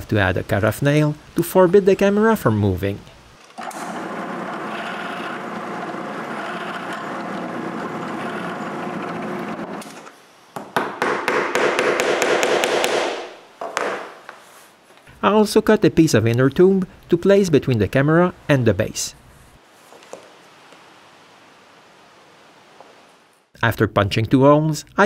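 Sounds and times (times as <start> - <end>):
electric drill boring wood: 3.6 - 9.8.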